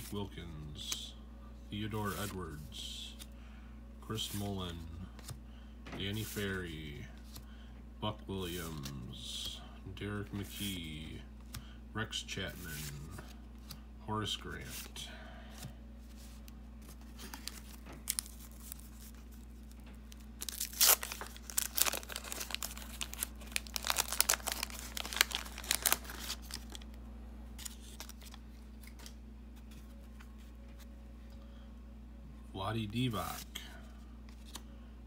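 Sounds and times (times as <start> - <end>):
soft handling of cards: 0.0 - 3.4, 4.0 - 31.6, 32.7 - 35.0
paper wrapper tearing and crinkling: 17.2 - 26.9.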